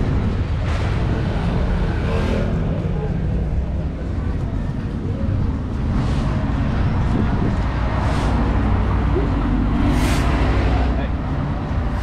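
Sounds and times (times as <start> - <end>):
road vehicle rumble: 0.0 - 12.0
vehicles hissing past: 5.9 - 12.0.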